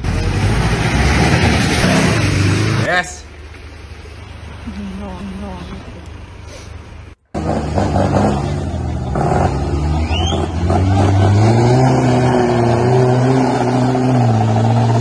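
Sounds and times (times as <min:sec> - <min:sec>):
engine revving hard: 0:00.0 - 0:02.9, 0:07.4 - 0:15.0.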